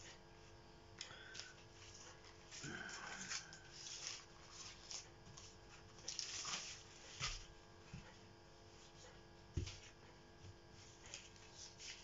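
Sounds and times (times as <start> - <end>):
baking paper crinkling: 1.2 - 7.6, 10.7 - 12.0.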